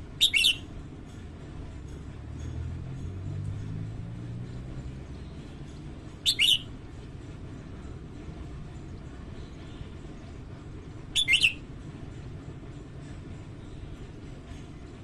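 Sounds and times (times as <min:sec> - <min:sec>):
low background rumble: 0:00.0 - 0:15.0
bird singing: 0:00.1 - 0:00.7, 0:06.2 - 0:06.7, 0:11.2 - 0:11.6.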